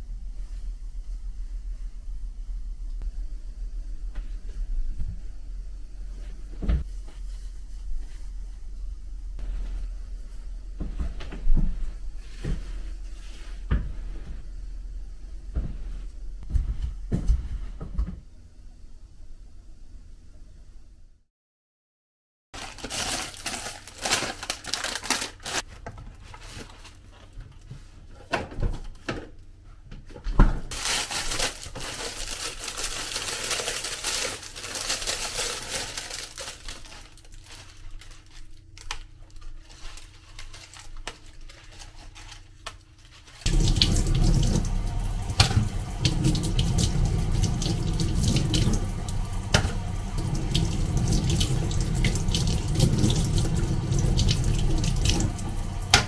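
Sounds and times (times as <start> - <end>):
plastic packaging rustling: 22.6 - 27.7, 30.7 - 54.0
tap water running: 43.4 - 56.0
water splashing in metal colander: 43.5 - 56.0.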